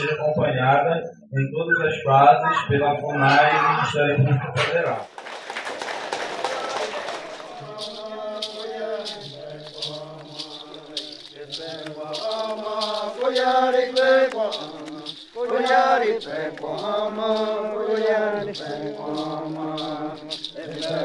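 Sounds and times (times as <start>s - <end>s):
men chanting in unison: 6.4s - 21.0s
sharp percussive beat: 6.5s - 21.0s.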